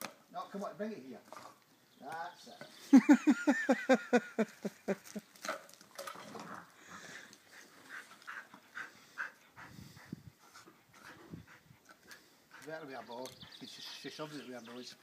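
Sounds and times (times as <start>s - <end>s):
dog panting: 7.0s - 15.0s.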